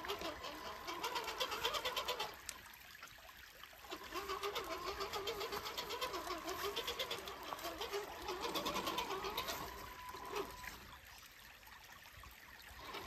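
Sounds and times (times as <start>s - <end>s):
toy truck electric motor whining: 7.9s - 10.9s.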